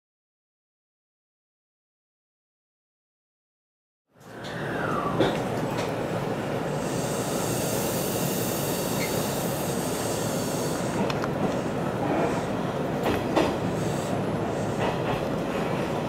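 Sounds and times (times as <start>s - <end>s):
train running with hiss: 4.2s - 16.0s.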